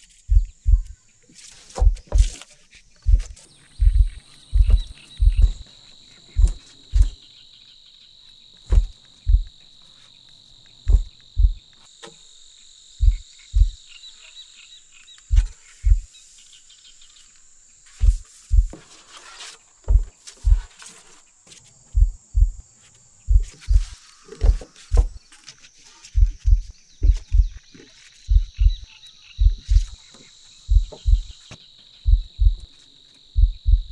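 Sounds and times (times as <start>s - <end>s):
insects trilling: 0.0s - 33.9s
deep thumps: 0.3s - 1.0s, 1.8s - 2.4s, 3.0s - 5.6s, 6.3s - 7.2s, 8.7s - 9.6s, 10.8s - 11.7s, 13.0s - 13.8s, 15.3s - 16.1s, 18.0s - 18.8s, 19.9s - 20.7s, 21.9s - 22.6s, 23.3s - 25.2s, 26.2s - 27.6s, 28.3s - 30.0s, 30.7s - 31.4s, 32.1s - 32.6s, 33.4s - 33.9s.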